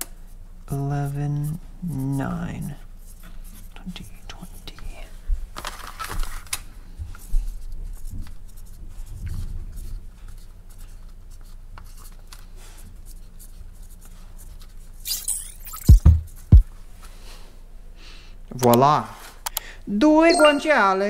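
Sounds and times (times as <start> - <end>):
plastic bag rustling: 5.5 - 6.6
marker scratching on plastic: 13.0 - 16.5.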